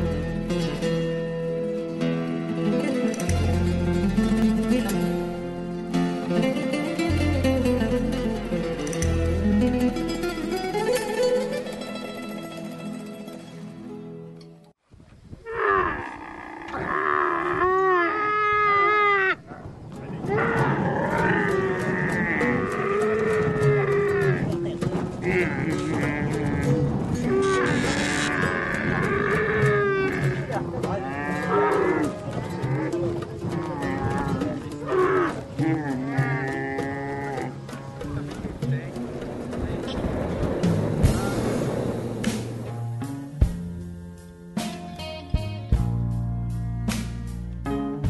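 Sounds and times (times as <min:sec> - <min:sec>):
camel bellowing: 0:15.5 - 0:19.5, 0:20.2 - 0:24.5, 0:25.1 - 0:37.9.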